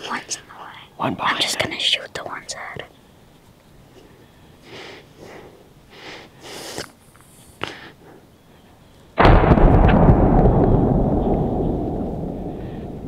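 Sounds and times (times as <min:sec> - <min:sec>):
shotgun shot with echo: 0:09.2 - 0:13.0.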